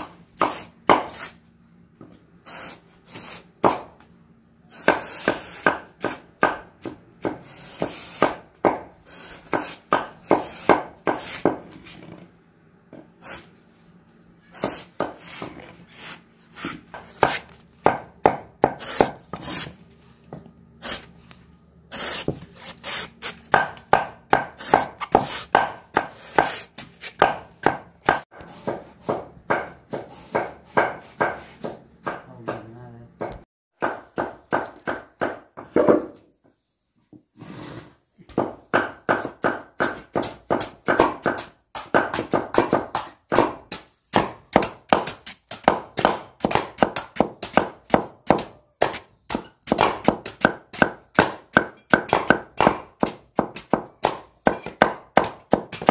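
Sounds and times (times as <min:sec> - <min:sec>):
knife chopping plant stalks: 0:00.0 - 0:01.4, 0:04.7 - 0:12.0, 0:14.6 - 0:19.8, 0:21.9 - 0:32.6, 0:38.3 - 0:55.9.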